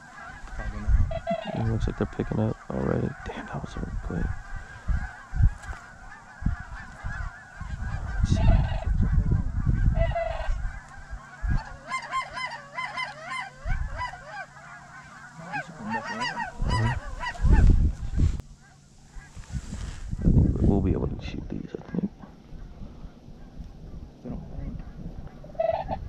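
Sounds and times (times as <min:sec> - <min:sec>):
cranes calling: 0:00.0 - 0:20.6, 0:21.7 - 0:26.0
rumbling on microphone: 0:16.4 - 0:18.4.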